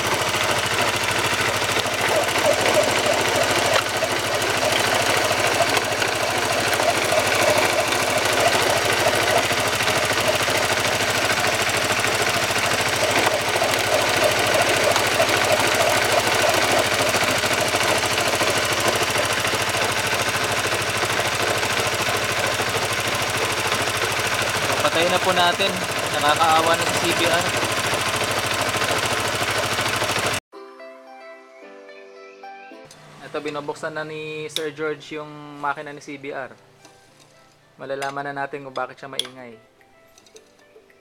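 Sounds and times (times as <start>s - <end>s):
motorcycle engine running: 0.0s - 30.4s.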